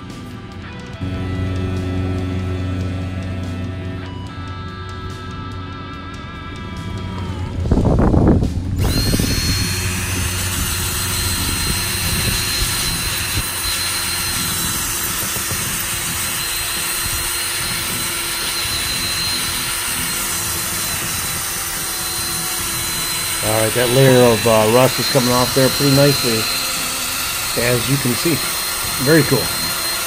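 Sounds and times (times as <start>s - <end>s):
drill wire brush scrubbing metal: 6.7s - 30.0s.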